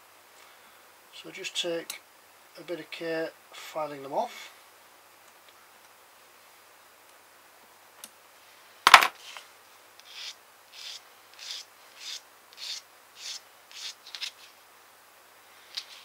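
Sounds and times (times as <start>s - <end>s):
sanding stick rubbing plastic: 10.0s - 14.5s.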